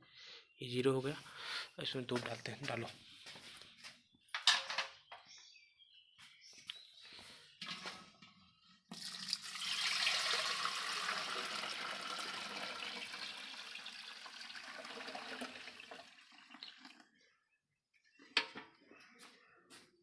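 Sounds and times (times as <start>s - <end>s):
milk pouring into can: 7.6s - 8.0s, 8.9s - 17.2s.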